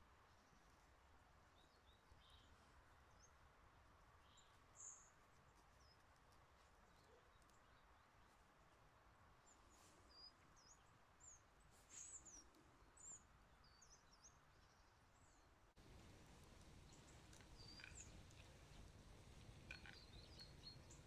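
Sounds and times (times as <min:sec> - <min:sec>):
faint high bird chirps: 0:16.8 - 0:18.9, 0:19.5 - 0:21.0.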